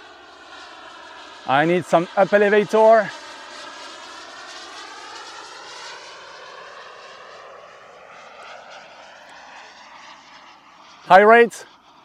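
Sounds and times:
model jet turbine whining: 0:00.0 - 0:12.0.

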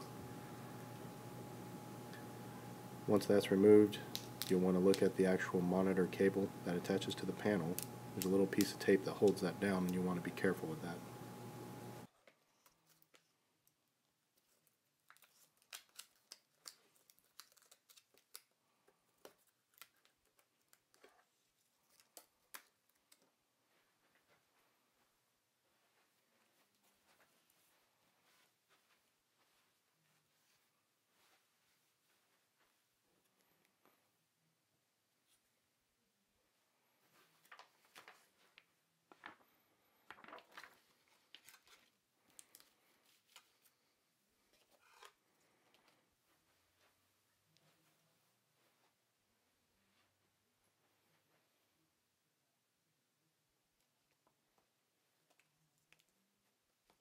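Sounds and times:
hands handling cable and tape: 0:04.0 - 0:05.2, 0:12.2 - 0:23.4, 0:37.2 - 0:43.8.

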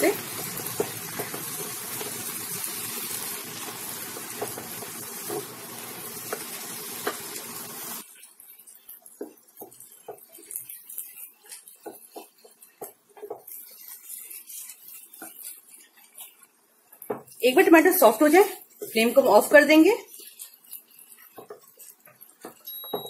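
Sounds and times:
wooden spatula scraping a pan: 0:00.0 - 0:22.7
vegetables sizzling in a frying pan: 0:00.0 - 0:23.0.

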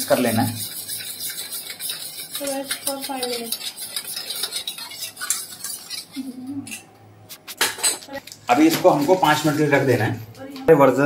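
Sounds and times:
spoon clinking in a metal bowl: 0:00.0 - 0:06.9.

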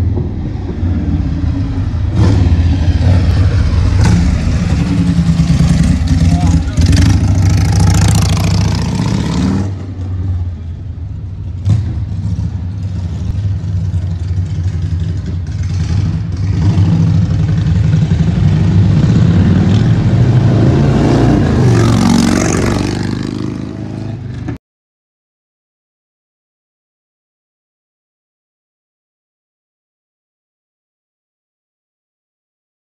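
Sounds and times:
motorcycle riding off: 0:00.5 - 0:10.4, 0:11.6 - 0:24.6.

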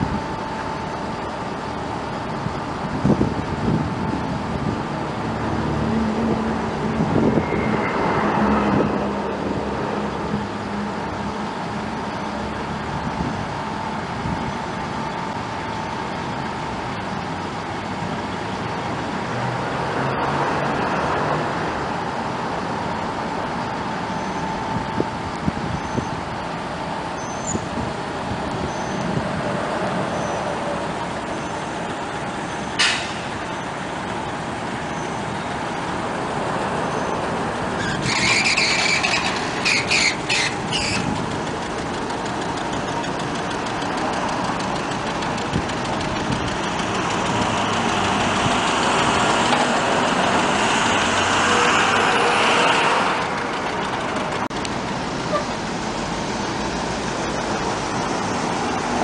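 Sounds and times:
mechanism clicks and squeaks: 0:37.8 - 0:41.2
convertible top motors running: 0:37.9 - 0:51.2.

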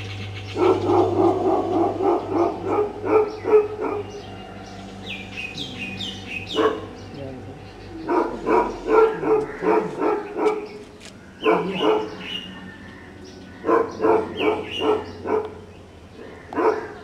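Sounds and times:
puppy yelping: 0:08.1 - 0:10.7, 0:11.4 - 0:12.3.

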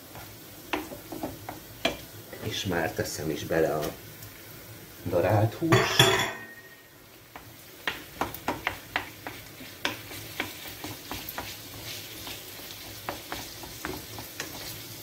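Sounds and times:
meat sizzling in a frying pan: 0:00.0 - 0:15.0
wooden spoon knocking on pan: 0:00.7 - 0:02.0, 0:07.3 - 0:14.7.

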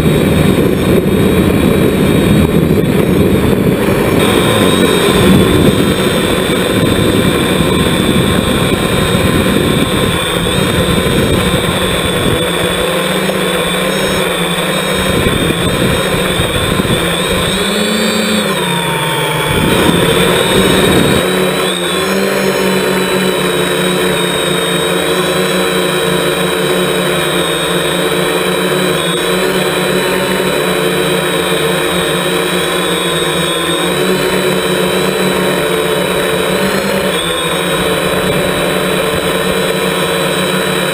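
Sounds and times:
wind buffeting rumble: 0:00.0 - 0:13.8, 0:14.8 - 0:17.8, 0:19.4 - 0:21.4
drone propellers whining: 0:00.0 - 0:40.9.

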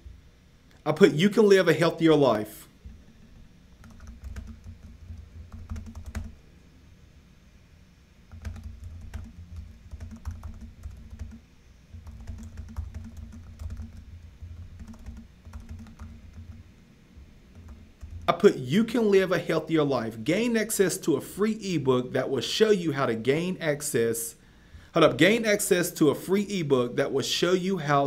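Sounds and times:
keyboard typing clicks: 0:03.2 - 0:06.3, 0:08.3 - 0:11.4, 0:12.0 - 0:14.0, 0:14.8 - 0:16.5.

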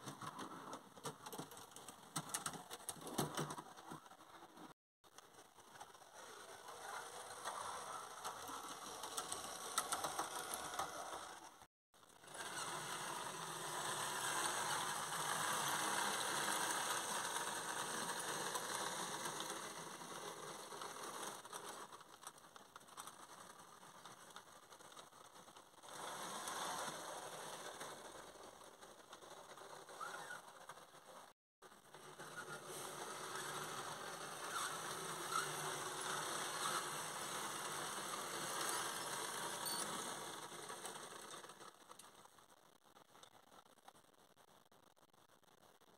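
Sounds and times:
wheels clicking on rails: 0:00.0 - 0:42.6
model train motor whirring: 0:05.3 - 0:31.1, 0:31.8 - 0:42.2.

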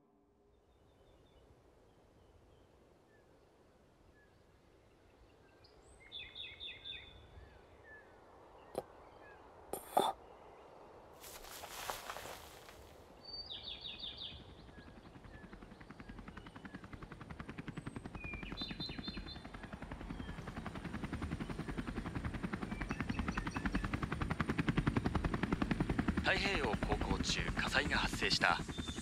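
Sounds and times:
helicopter rotor beating: 0:14.2 - 0:29.0.

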